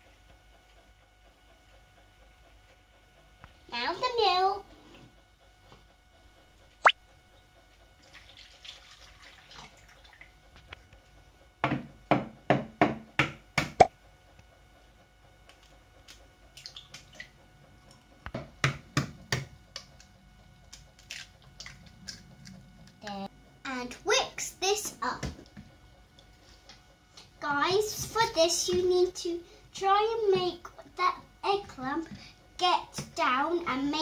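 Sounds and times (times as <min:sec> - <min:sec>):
milk pouring into plastic bowl: 0:08.0 - 0:10.2.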